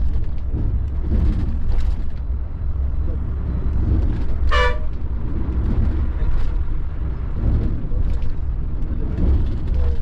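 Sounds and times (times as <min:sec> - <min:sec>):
coach diesel engine rumbling: 0:00.0 - 0:10.0
road noise: 0:00.0 - 0:10.0
short horn honk: 0:04.4 - 0:04.9.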